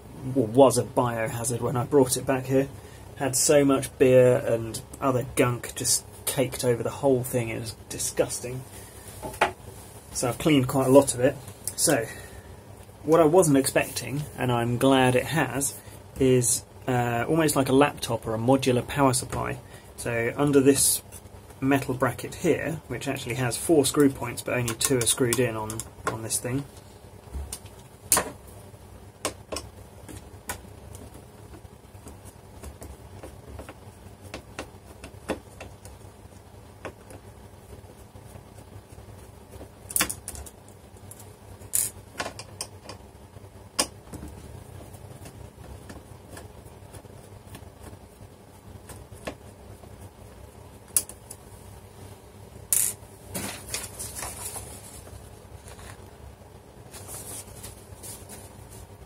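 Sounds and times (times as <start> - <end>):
paper rustling: 53.3 - 56.1, 56.8 - 59.0.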